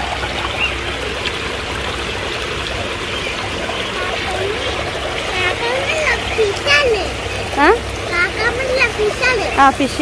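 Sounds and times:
water splashing over rocks: 0.0s - 10.0s.

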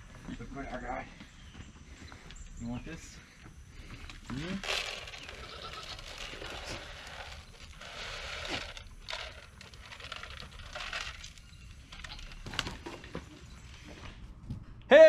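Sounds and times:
pellets rattling into plastic pan: 4.3s - 13.0s.

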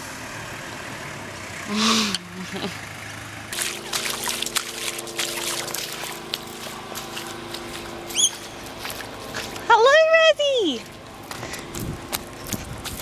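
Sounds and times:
steady low hum: 1.6s - 13.0s
water dripping: 3.5s - 9.1s
footsteps splashing through water: 3.5s - 13.0s.

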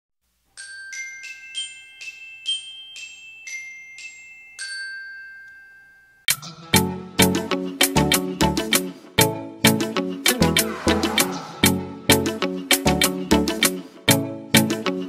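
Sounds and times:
glockenspiel notes: 0.6s - 6.3s
background music: 6.3s - 15.0s
sudden loud hit: 10.5s - 12.3s.

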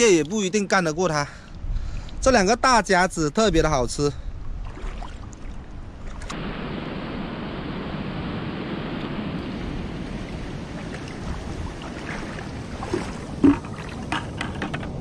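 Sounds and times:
sea water rushing over rocks: 6.1s - 15.0s.

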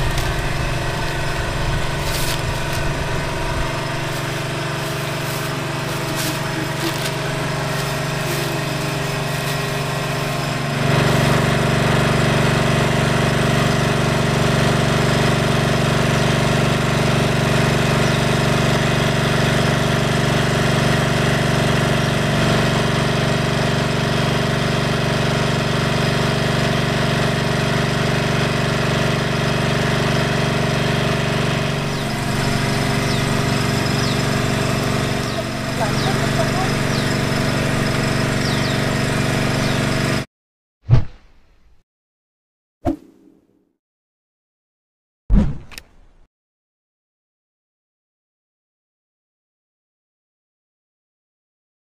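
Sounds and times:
small engine running: 0.0s - 40.3s.

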